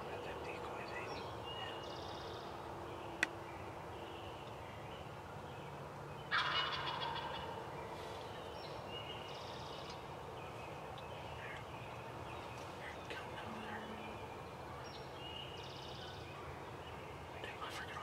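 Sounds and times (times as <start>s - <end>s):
turkey gobbling: 6.3s - 7.5s.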